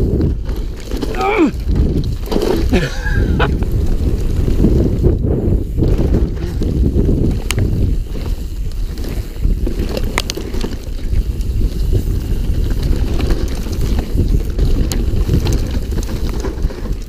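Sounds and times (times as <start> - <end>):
bike clicks and rattles: 0.0 - 17.0
tyres rumbling on rough ground: 0.0 - 17.0
wind buffeting microphone: 0.0 - 17.0.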